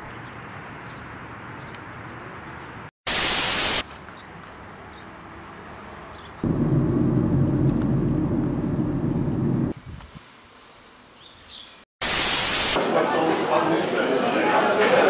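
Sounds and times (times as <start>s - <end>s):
tv static burst: 3.1s - 3.8s, 12.0s - 12.8s
car interior rumble: 6.4s - 9.8s.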